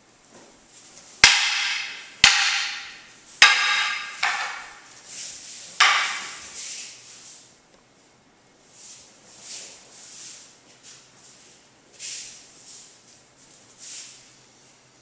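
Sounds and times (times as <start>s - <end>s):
wooden weapons clacking: 1.2s - 4.9s, 5.8s - 6.5s.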